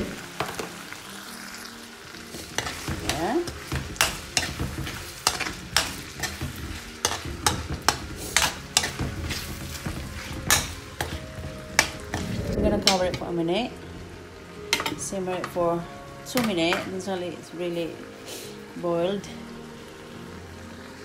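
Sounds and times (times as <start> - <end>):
vegetables sizzling in oil: 0.0 - 21.0
metal spoon scraping pan: 4.0 - 11.2.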